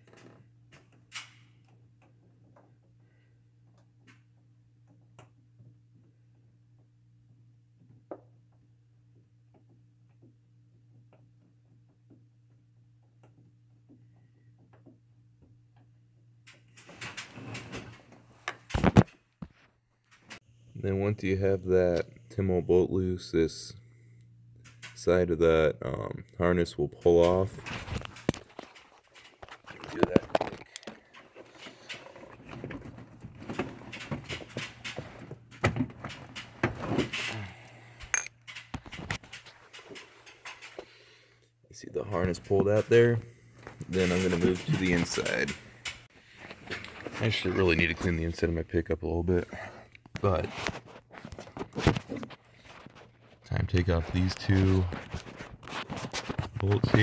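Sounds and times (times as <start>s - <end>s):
rustling and scraping: 27.2s - 37.6s, 42.0s - 48.4s, 49.6s - 57.0s.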